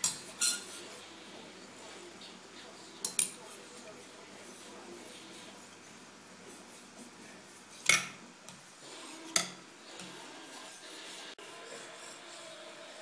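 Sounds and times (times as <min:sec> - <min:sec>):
knife rasping on whetstone: 0:10.0 - 0:13.0.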